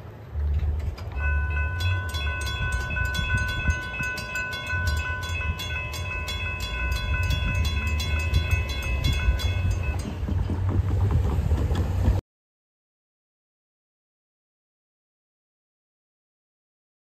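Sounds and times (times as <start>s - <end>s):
crossing warning bell ringing: 1.0s - 11.1s.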